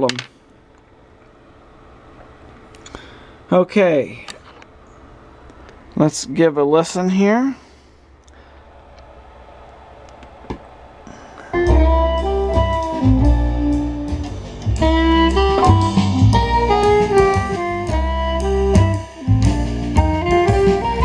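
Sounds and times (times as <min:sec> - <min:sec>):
music through loudspeaker: 0:11.6 - 0:21.0.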